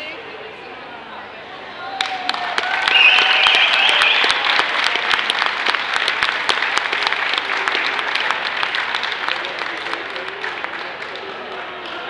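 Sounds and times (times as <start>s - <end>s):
audience clapping: 2.0s - 12.0s
high voice cheering: 2.8s - 4.7s.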